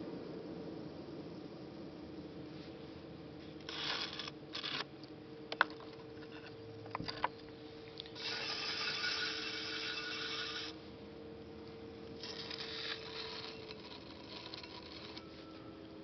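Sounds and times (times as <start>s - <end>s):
potter's wheel humming: 1.5s - 16.0s
rasping hiss: 8.2s - 10.9s
scraping and rubbing rustles: 12.2s - 15.7s.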